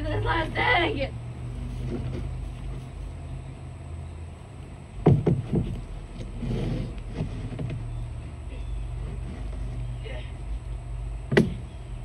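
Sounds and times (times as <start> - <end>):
phone handling rumble: 0.0 - 3.6, 4.2 - 12.0
loud knocks: 5.0 - 6.6, 11.3 - 11.7.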